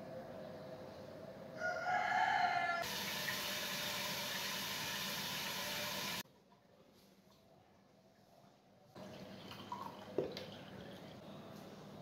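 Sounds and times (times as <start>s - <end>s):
rooster crowing: 1.6s - 2.9s.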